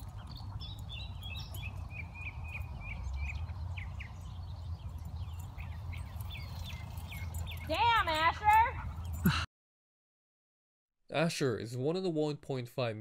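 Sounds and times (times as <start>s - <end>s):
wind rumble on microphone: 0.0s - 7.7s
small birds chirping: 0.0s - 9.4s.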